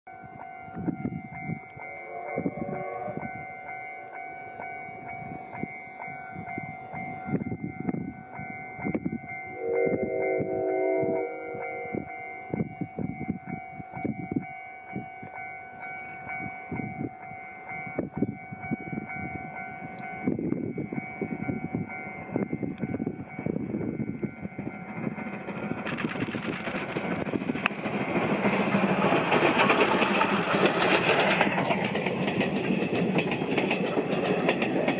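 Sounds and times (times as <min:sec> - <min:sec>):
steady ringing tone: 0:00.1 - 0:34.9
steam locomotive chuffing: 0:00.3 - 0:14.5, 0:18.9 - 0:34.9
train wheels rushing past: 0:08.5 - 0:12.7, 0:21.0 - 0:34.9.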